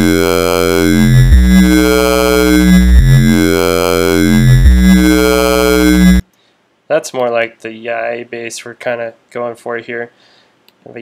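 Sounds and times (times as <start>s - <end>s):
synthesizer bass line: 0.0s - 6.2s.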